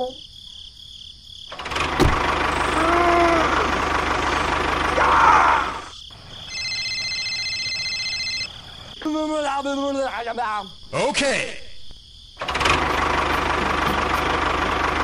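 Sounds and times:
tractor engine running roughly: 1.6 - 5.1, 12.4 - 15.0
phone ringtone beeps: 6.5 - 8.5.

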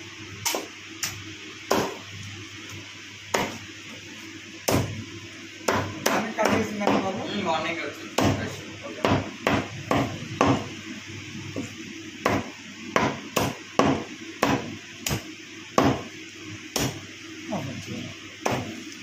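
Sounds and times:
cleaver chopping on wooden block: 5.7 - 7.1, 8.2 - 8.4, 9.0 - 10.7, 12.2 - 15.2, 15.8 - 16.1, 18.4 - 18.7.

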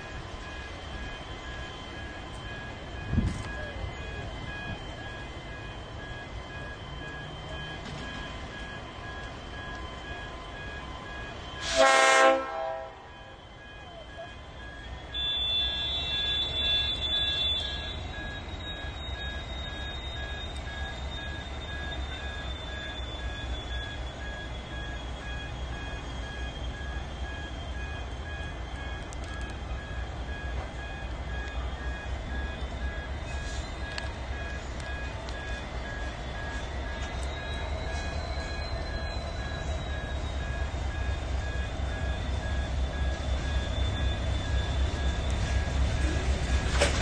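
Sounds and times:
diesel locomotives idling: 0.0 - 47.0
locomotive horn toot: 11.6 - 13.4, 15.1 - 18.3
wheels squealing on track: 15.2 - 27.0.

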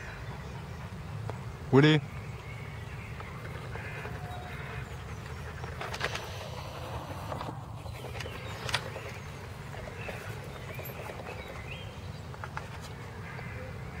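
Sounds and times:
birdsong chirps: 0.0 - 14.0
sharp clicks: 5.7 - 9.2.

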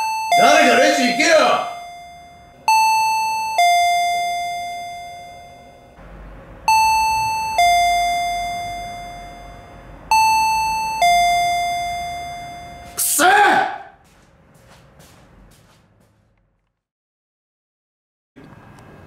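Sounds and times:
electronic two-tone chime: 0.0 - 6.0, 6.7 - 13.0.

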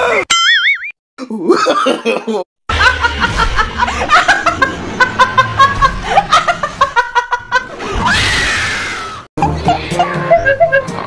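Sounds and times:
woman laughing: 9.4 - 11.0.

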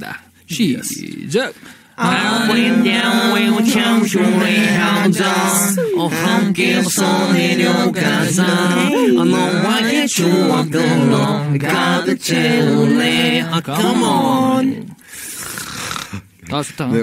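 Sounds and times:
men singing a jingle together: 2.0 - 14.9.

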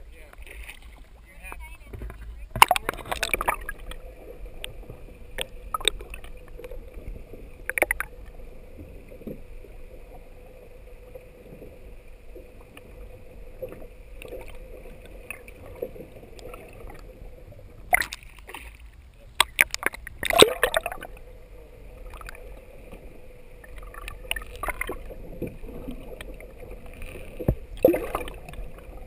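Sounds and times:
faint steady hum: 0.0 - 29.0
underwater low rumble: 0.0 - 29.0
knocks and splashes: 2.0 - 4.0, 17.9 - 18.8, 19.4 - 21.1, 23.8 - 26.4, 27.0 - 28.8.

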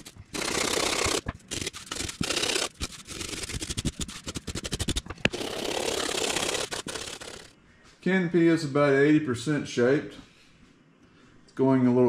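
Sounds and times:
sandpaper and rasp scraping foam: 0.0 - 7.5.

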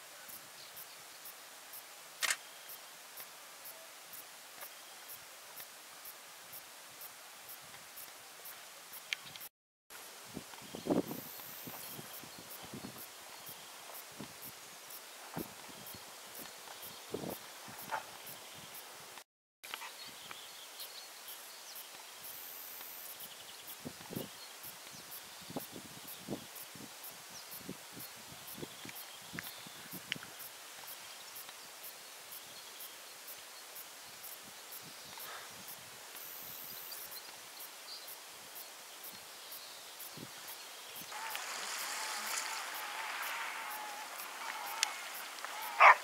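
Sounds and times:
countryside hiss: 0.0 - 46.0
horse rustling in long grass: 41.1 - 46.0
sea water along rocky shore: 41.1 - 46.0.

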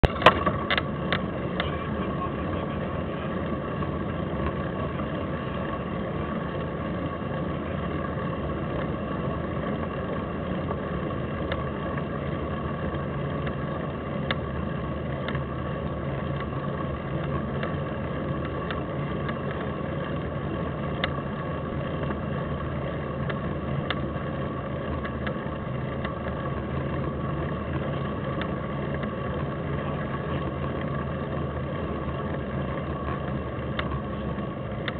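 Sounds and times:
bike ride noise rush: 0.0 - 34.9
faint hum: 0.0 - 34.9.

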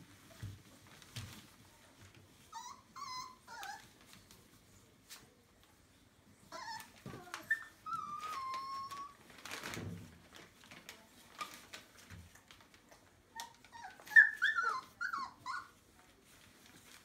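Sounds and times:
paws scratching on paper: 0.0 - 5.8, 6.5 - 17.0
puppies whimpering and squealing: 2.4 - 4.0, 6.4 - 9.2, 13.4 - 15.8.

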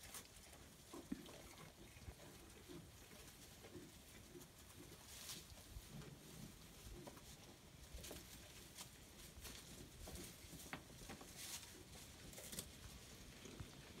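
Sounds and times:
goats chewing fodder: 0.0 - 14.0.

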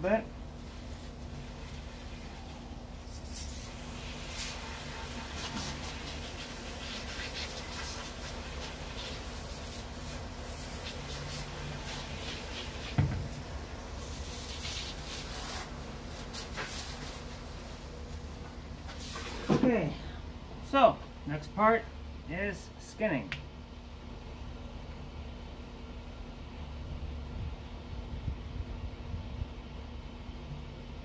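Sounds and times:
water spraying from hose nozzle: 0.5 - 19.5.

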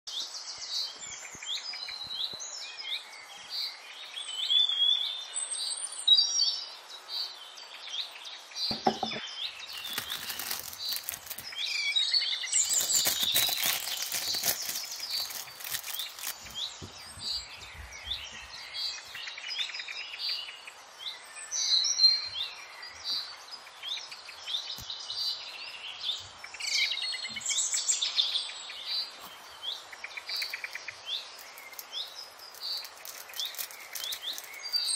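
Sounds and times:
small birds chirping: 0.1 - 34.9
cellophane bag crinkling: 9.7 - 11.6, 12.6 - 16.6, 31.4 - 34.9.

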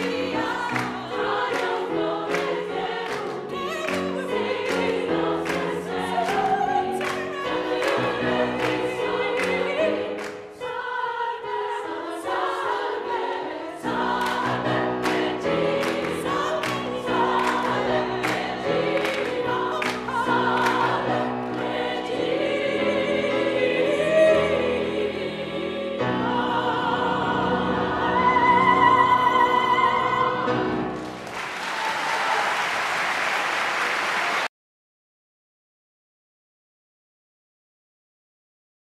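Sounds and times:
singers clapping on the beat: 0.0 - 10.6, 14.1 - 22.1, 31.0 - 34.5
choir singing a gospel hymn: 0.0 - 31.2
applause: 2.3 - 6.4, 17.4 - 20.0, 31.0 - 34.5.

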